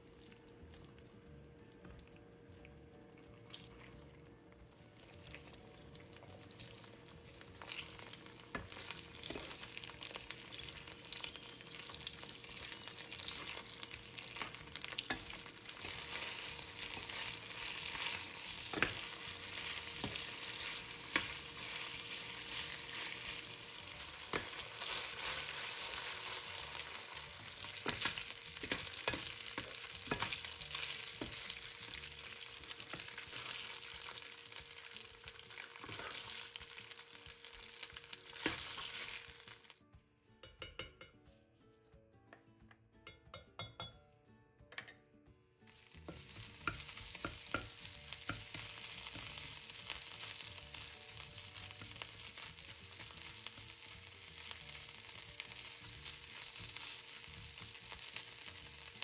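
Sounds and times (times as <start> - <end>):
chicken sizzling in a frying pan: 3.5 - 39.8, 45.7 - 59.0.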